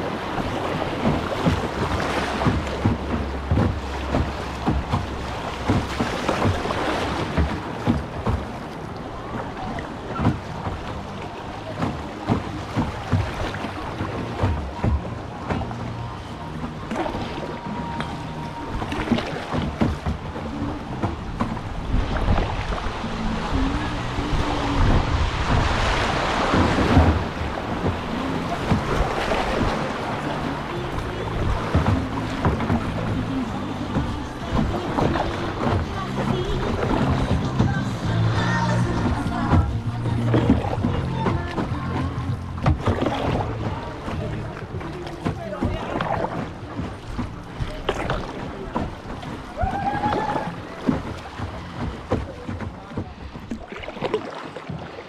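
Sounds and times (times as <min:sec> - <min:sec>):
water splashing around boat: 0:00.0 - 0:55.0
wind on microphone: 0:12.0 - 0:50.6.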